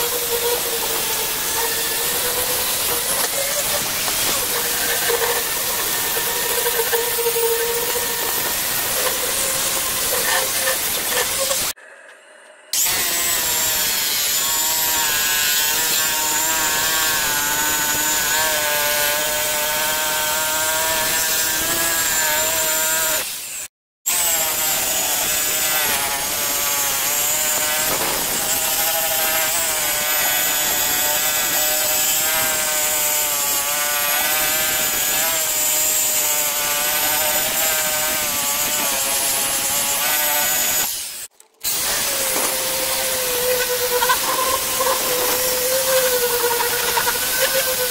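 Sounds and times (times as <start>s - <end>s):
angle grinder grinding metal: 0.0s - 11.8s, 12.7s - 47.9s.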